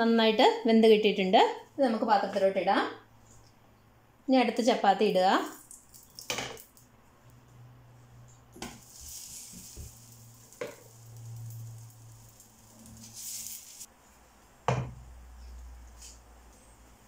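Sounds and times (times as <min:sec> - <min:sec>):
flatbread sizzling in frying pan: 0:08.6 - 0:13.9.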